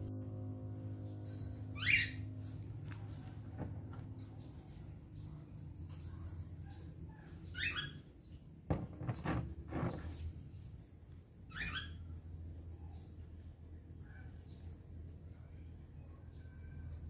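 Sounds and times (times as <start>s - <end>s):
steady low hum: 0.0s - 7.5s.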